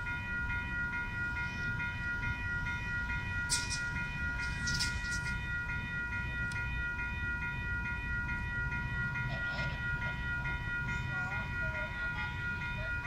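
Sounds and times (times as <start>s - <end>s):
level crossing bell ringing: 0.0s - 13.0s
train rumble: 0.0s - 13.0s.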